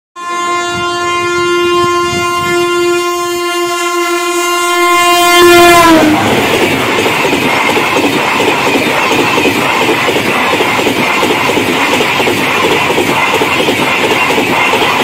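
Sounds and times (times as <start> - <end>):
locomotive air horn blast: 0.2 - 6.6
rush of passing train: 0.4 - 15.0.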